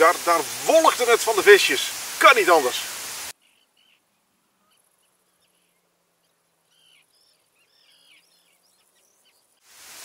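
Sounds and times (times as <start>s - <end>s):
terns calling harshly: 0.0s - 4.0s.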